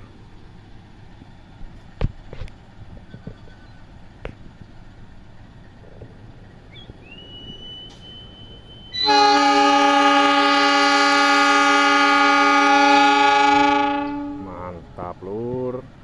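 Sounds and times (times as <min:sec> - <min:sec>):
locomotive air horn blast: 0:08.9 - 0:14.9.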